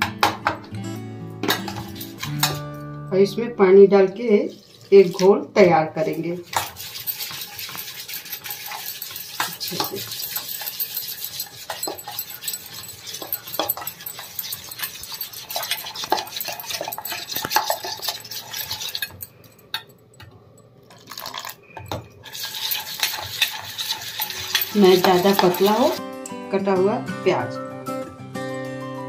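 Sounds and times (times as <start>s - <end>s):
metal spoon stirring in a pot: 1.4s - 2.7s, 4.2s - 5.5s, 6.1s - 26.0s.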